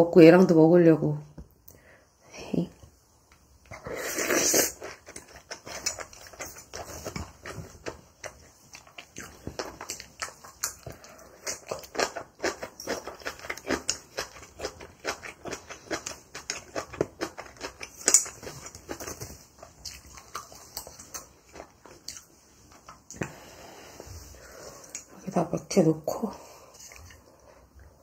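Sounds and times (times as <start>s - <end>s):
chewing crunchy food: 3.7s - 23.6s, 26.6s - 28.0s.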